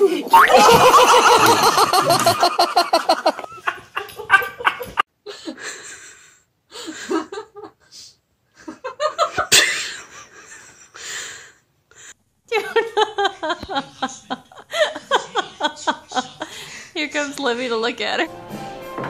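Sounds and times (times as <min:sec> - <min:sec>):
snickers and giggles: 0:00.3 - 0:05.0
hearty laugh: 0:00.4 - 0:06.0, 0:08.6 - 0:11.0, 0:12.5 - 0:16.8.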